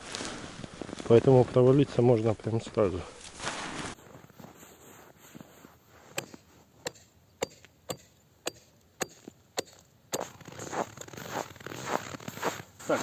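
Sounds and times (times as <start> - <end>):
ice chisel striking ice: 6.1 - 10.7.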